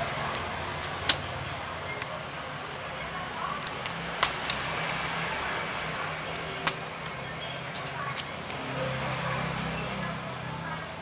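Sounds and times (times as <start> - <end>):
plastic clicks and snaps: 3.6 - 5.0.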